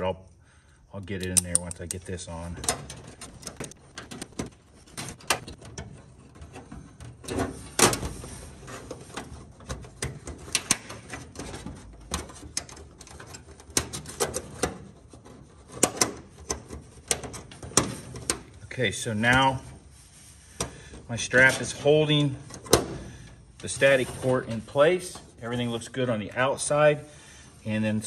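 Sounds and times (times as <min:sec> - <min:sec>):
metal clicks and taps: 0:01.2 - 0:02.1.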